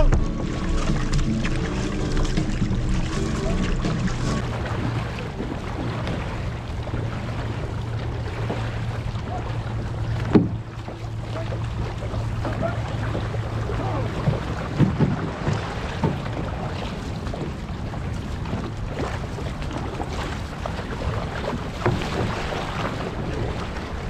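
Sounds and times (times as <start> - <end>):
steady low hum: 0.0 - 14.3
paddle splashes: 0.0 - 24.0
water rushing past canoe hull: 0.0 - 24.0.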